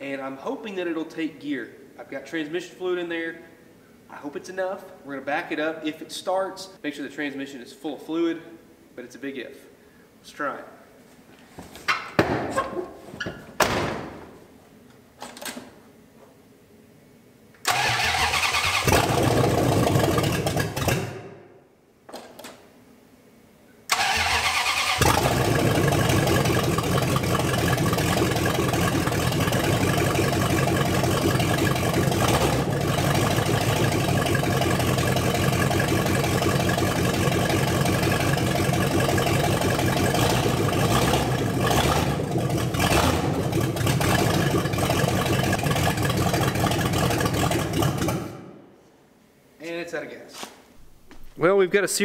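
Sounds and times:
car engine cranking and running: 17.6s - 21.1s, 23.9s - 48.4s.

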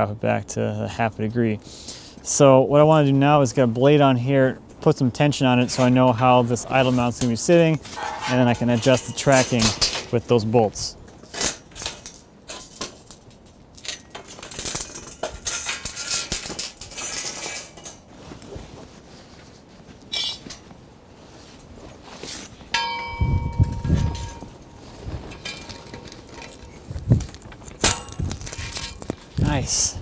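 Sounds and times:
metal scraping and knocking: 5.7s - 10.2s, 13.8s - 18.1s, 20.1s - 20.6s, 22.8s - 29.4s
ringing metal clang: 7.9s - 10.1s, 20.1s - 20.5s, 22.7s - 24.8s.

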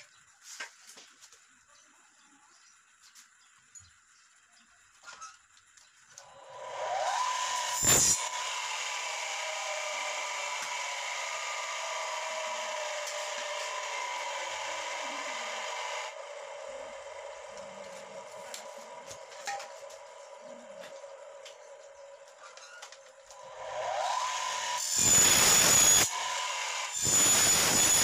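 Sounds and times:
miter saw motor whine: 6.2s - 28.0s
saw blade cutting metal bar: 6.5s - 16.2s, 23.4s - 28.0s.

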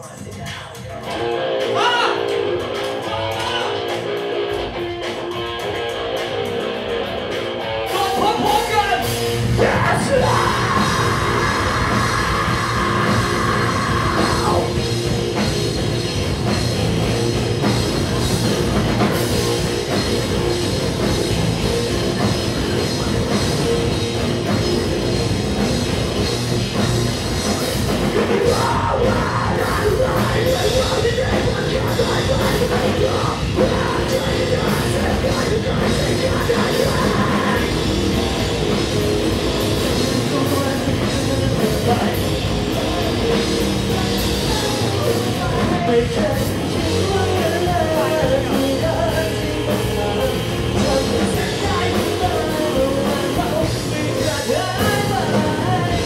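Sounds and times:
rock band playing live: 0.0s - 56.0s
singer's vocal: 7.8s - 15.4s, 27.5s - 38.8s, 39.7s - 56.0s.

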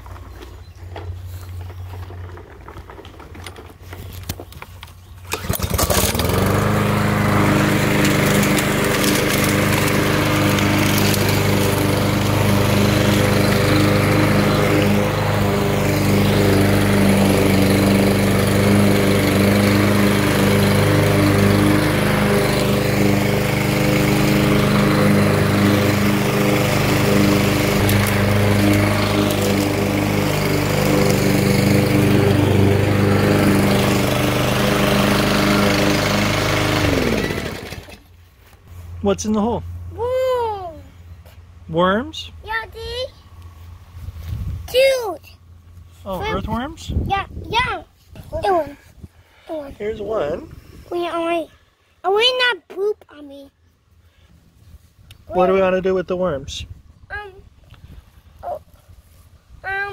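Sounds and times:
lawn mower engine running: 0.0s - 40.0s
lawn mower pull start: 0.1s - 38.2s.

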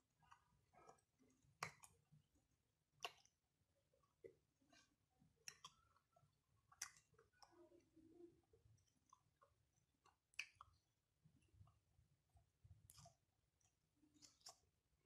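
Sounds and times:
person chewing: 12.9s - 14.7s.

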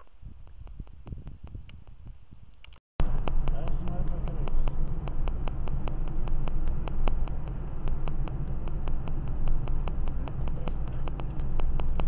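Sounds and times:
faint rapid ticking: 0.0s - 12.0s
car engine and tyre rumble: 3.0s - 12.0s.

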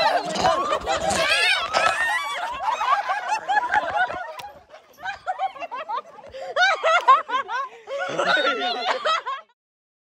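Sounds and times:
people giggling: 0.0s - 9.6s.

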